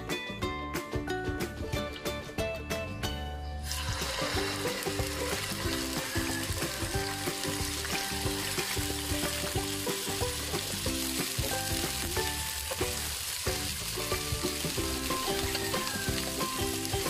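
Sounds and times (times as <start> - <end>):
chicken sizzling in hot oil: 3.6 - 17.0.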